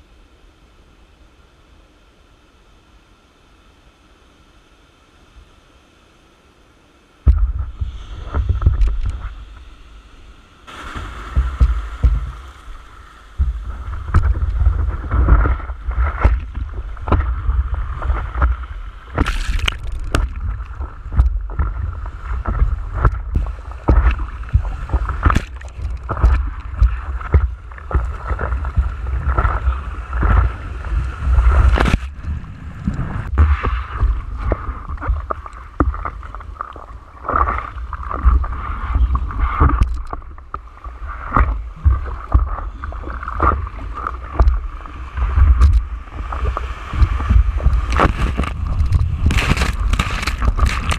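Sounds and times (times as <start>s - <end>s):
low rumble of water: 0.0s - 50.9s
water splashing against surfboard: 7.3s - 50.9s
handling noise on microphone: 45.3s - 50.9s.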